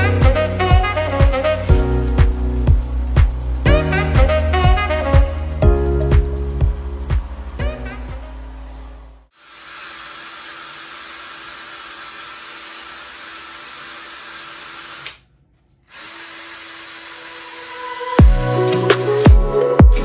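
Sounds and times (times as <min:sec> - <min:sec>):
drill brush scrubbing carpet: 0:09.3 - 0:14.6.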